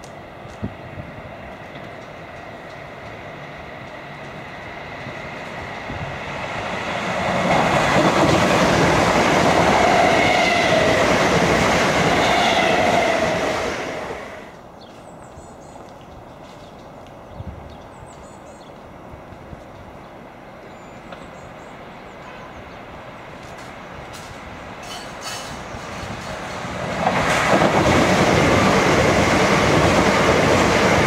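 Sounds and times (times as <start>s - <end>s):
train passing at speed: 0.0s - 31.0s.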